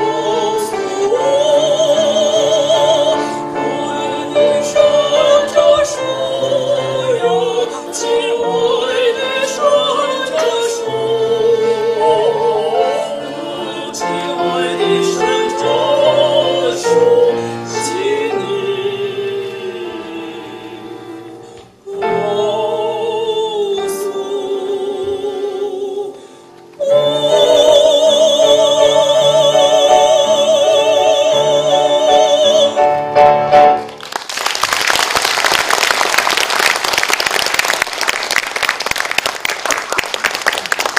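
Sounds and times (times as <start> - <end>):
female trio singing in harmony: 0.0 - 33.1
audience applause: 33.8 - 40.9.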